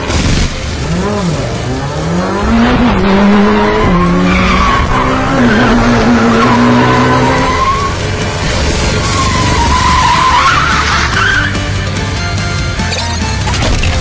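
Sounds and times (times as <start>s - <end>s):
car engine revving hard: 0.7s - 11.1s
tyres squealing: 3.4s - 8.3s, 9.0s - 11.6s.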